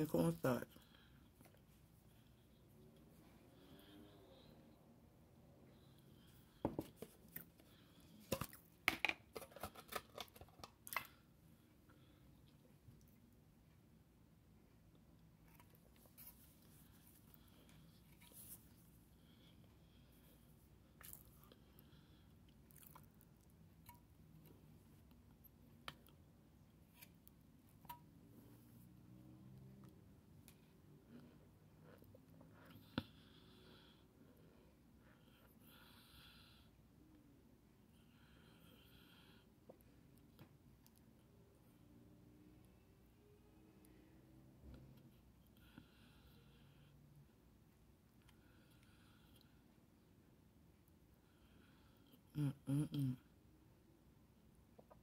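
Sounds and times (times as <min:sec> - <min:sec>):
plastic container clicks and crackles: 0:08.3 - 0:11.1
faint chewing: 0:20.8 - 0:26.2.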